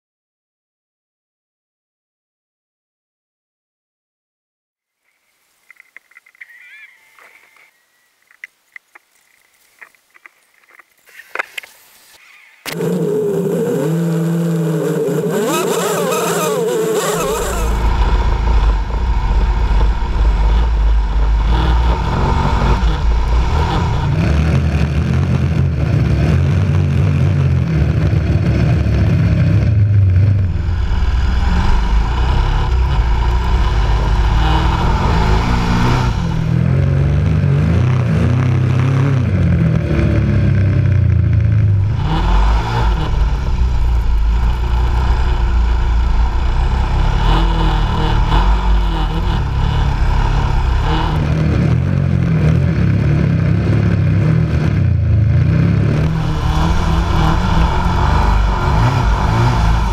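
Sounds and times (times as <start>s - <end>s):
motorcycle engine revving: 12.7s - 59.9s.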